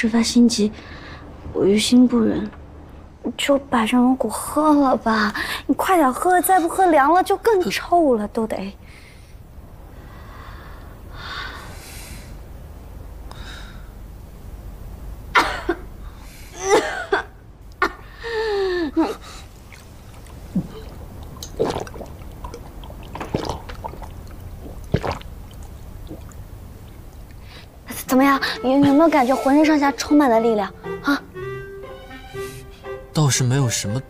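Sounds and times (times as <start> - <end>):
woman coughing: 15.3 - 15.9, 16.6 - 18.1
woman gasping: 18.0 - 19.5.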